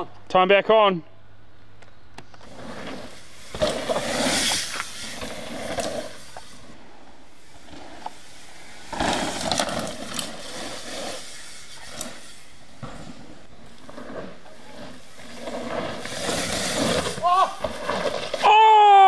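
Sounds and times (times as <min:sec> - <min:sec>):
bike tyres rolling over dirt: 0:01.6 - 0:19.0.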